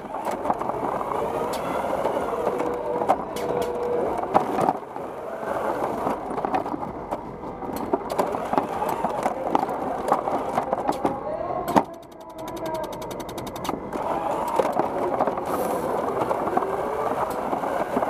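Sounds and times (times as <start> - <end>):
robot motors and wheels running: 0.0 - 11.1, 11.7 - 18.0.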